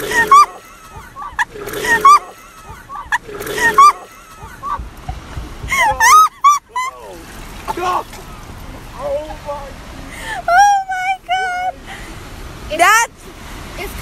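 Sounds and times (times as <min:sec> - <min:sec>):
high-pitched squealing voices: 0:00.0 - 0:04.8
person retching: 0:01.4 - 0:02.4.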